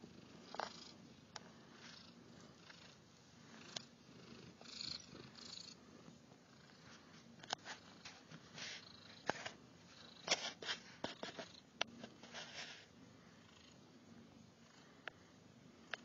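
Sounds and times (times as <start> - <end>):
cat purring: 0.0 - 11.7
small clicks and rustles: 6.7 - 8.6, 10.2 - 12.9.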